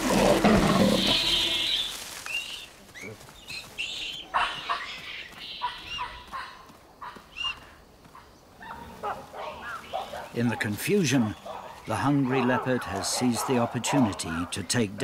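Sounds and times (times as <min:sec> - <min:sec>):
loud harsh animal call: 0:00.0 - 0:02.0.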